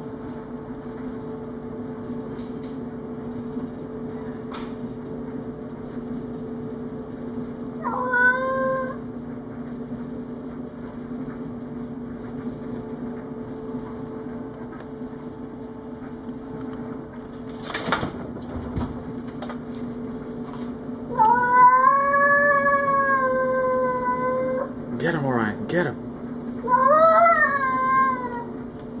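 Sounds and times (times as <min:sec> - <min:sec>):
cat growling: 0:07.8 - 0:09.0
cat yowling: 0:07.8 - 0:09.0, 0:21.1 - 0:24.7, 0:26.6 - 0:28.5.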